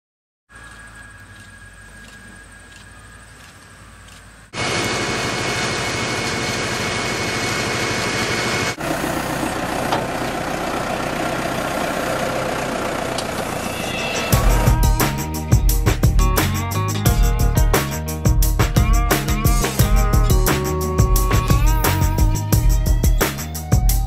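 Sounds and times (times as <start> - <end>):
tractor engine running: 0.6 - 23.3
music with a beat: 14.3 - 24.0.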